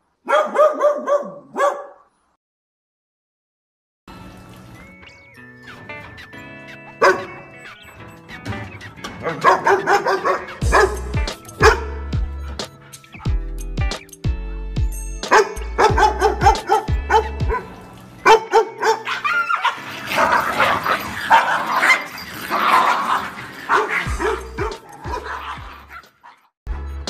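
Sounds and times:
dogs barking: 0.2s - 2.1s, 6.9s - 8.1s, 8.9s - 12.1s, 15.3s - 26.6s
background music with steady beat: 5.8s - 19.0s, 24.0s - 25.9s.

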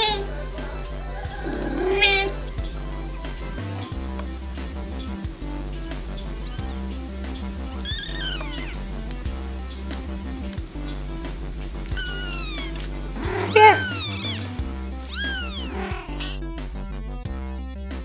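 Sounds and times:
kitten meowing: 0.0s - 0.3s, 1.4s - 2.4s, 7.8s - 8.9s, 11.9s - 16.4s
background music with beat: 0.0s - 18.0s.

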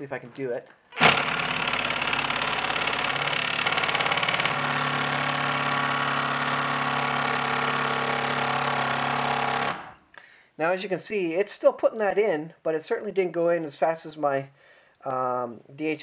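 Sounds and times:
impact driver driving screw into wood: 1.0s - 10.0s.

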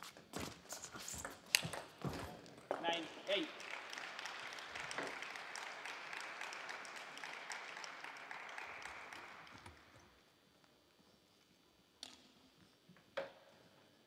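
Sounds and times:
spectators applauding: 3.0s - 10.1s.

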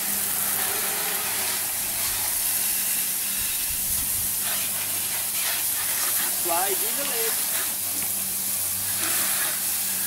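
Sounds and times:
water jets spraying: 0.0s - 10.0s.

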